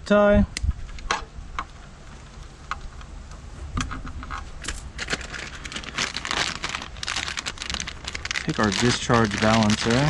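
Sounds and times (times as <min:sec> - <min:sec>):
plastic packaging crinkling: 0:04.7 - 0:10.0.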